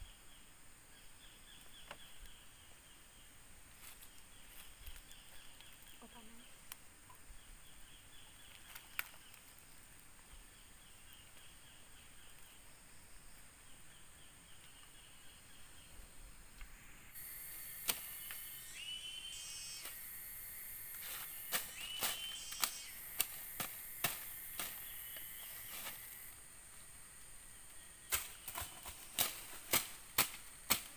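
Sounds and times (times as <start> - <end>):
shrill insect buzzing: 16.7 - 26.4
sharp clicks: 17.6 - 18.6, 20.9 - 26.0.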